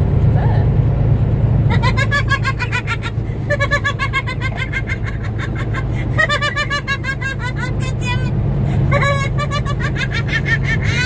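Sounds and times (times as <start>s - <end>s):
road noise: 0.0s - 11.0s
truck engine drone: 0.0s - 11.0s
woman laughing: 1.7s - 8.3s, 8.9s - 11.0s.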